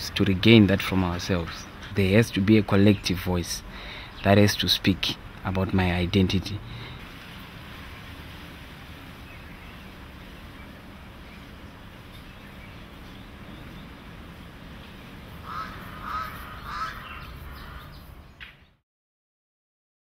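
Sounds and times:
low outdoor rumble: 0.0s - 18.4s
bird calling: 14.8s - 18.8s.

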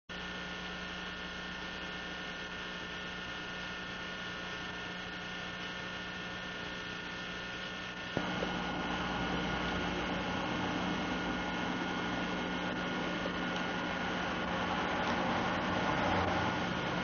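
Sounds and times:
electrical hum: 0.1s - 17.0s
steady hiss: 6.6s - 17.0s.

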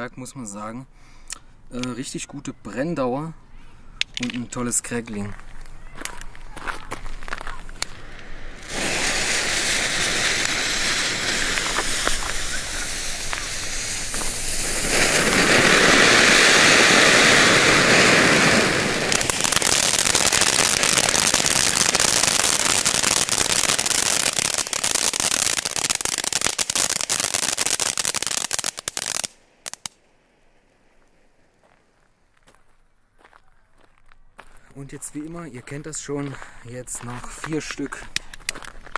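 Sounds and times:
fireworks crackling: 4.1s - 32.6s
firework fountains hissing: 7.8s - 30.0s.

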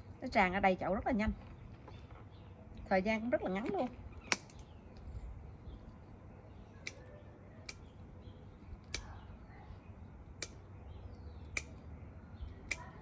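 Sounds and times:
pruning shears snipping stems: 6.8s - 7.0s, 8.8s - 9.2s, 10.4s - 10.7s, 11.4s - 11.9s, 12.5s - 13.0s.

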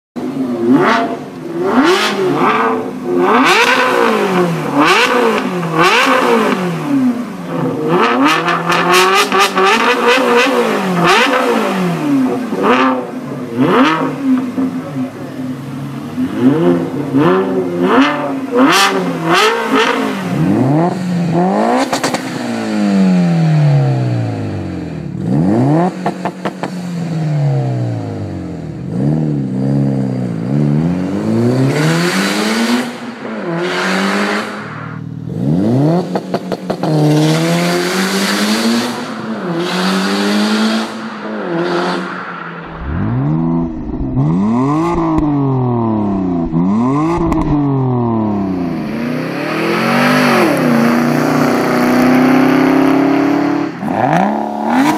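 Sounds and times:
car engine revving: 0.2s - 54.9s
deeper engine revving rumble: 27.3s - 54.9s
exhaust crackles: 38.2s - 54.9s.

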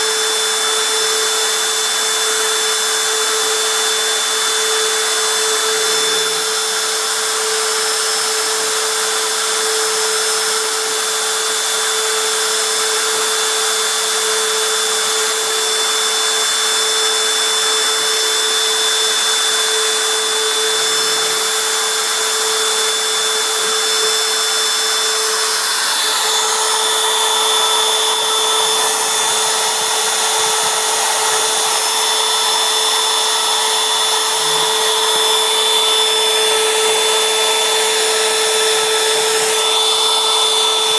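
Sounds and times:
router spindle whining: 0.0s - 40.9s.

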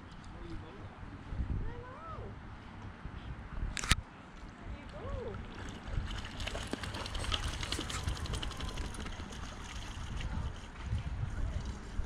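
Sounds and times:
wind rumbling on microphone: 0.0s - 4.0s, 4.6s - 12.0s
dog splashing in water: 5.5s - 10.8s.

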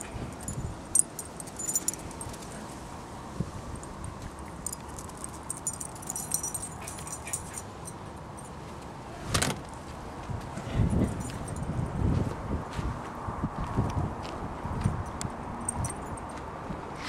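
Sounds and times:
small metal pieces jingling: 0.3s - 2.5s, 3.8s - 8.5s.

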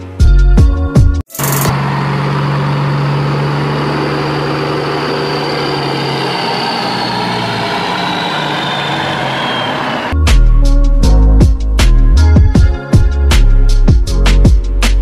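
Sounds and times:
truck engine idling: 1.8s - 10.1s.

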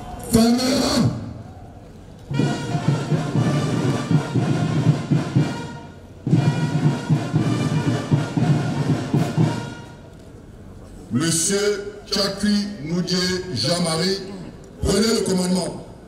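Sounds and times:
band music: 2.3s - 10.1s.

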